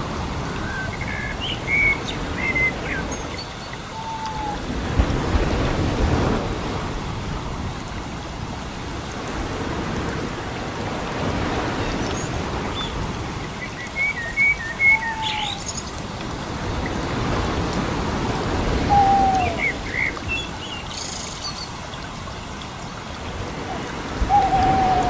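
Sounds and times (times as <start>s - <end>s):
small birds chirping: 13.6s - 16.0s.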